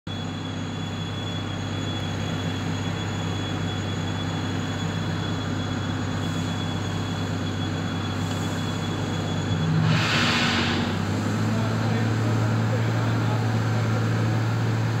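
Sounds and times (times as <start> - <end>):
construction machine humming: 0.1 - 15.0
thin high whine: 0.8 - 13.4.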